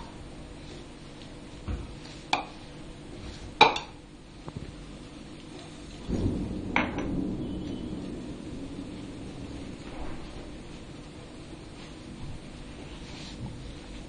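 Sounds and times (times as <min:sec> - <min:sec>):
hand mixing dough: 0:00.0 - 0:06.1, 0:10.3 - 0:14.0
low rumble: 0:05.8 - 0:14.0.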